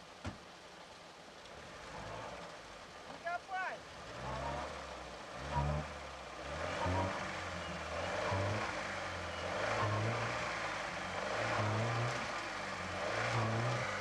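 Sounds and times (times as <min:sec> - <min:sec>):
engine labouring and surging: 0:01.3 - 0:14.0.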